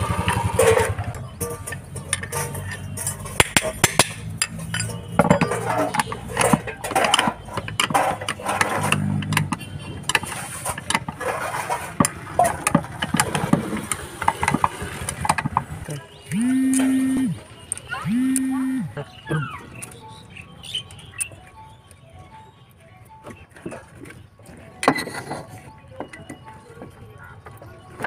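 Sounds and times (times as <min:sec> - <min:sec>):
metal clinks and knocks: 0:00.1 - 0:16.1.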